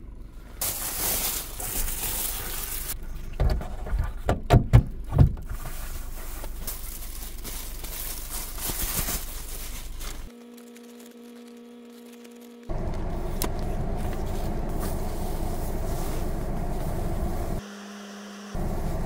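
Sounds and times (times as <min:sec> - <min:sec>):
quiet steady hum: 0:00.0 - 0:17.6
crinkling foil blankets: 0:00.6 - 0:03.0, 0:05.4 - 0:17.0.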